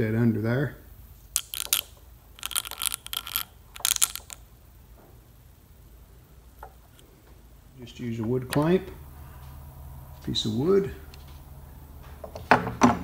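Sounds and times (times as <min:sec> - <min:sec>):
faint room noise: 0:00.0 - 0:13.0
glue squirting with crackly hiss: 0:01.2 - 0:04.6.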